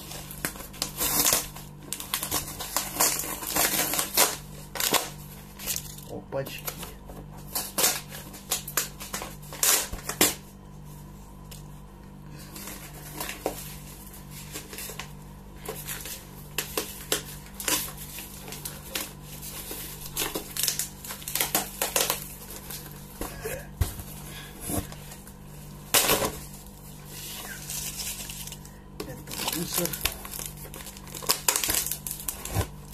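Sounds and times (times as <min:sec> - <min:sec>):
packing tape ripping: 0:00.0 - 0:06.1, 0:07.4 - 0:10.4, 0:14.4 - 0:23.5, 0:24.7 - 0:32.9.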